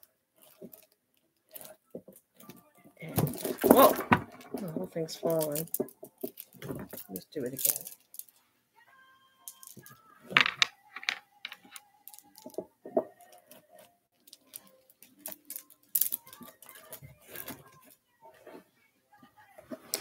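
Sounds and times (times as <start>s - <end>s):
glass beads clicking and rattling: 3.3s - 8.4s, 9.5s - 12.6s, 14.2s - 17.9s.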